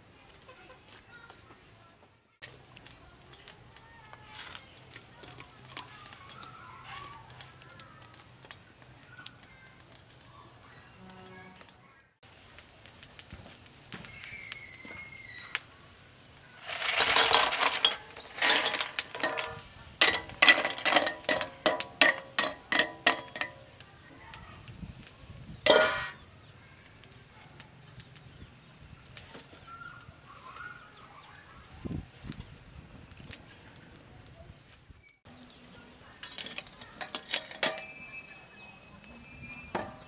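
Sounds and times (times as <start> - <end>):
snail shells clattering in a wok: 16.6 - 23.8, 25.6 - 26.2, 36.2 - 38.2
steel lid clanging on wok: 16.6 - 23.8, 25.7 - 26.2, 36.2 - 38.0, 39.8 - 40.0.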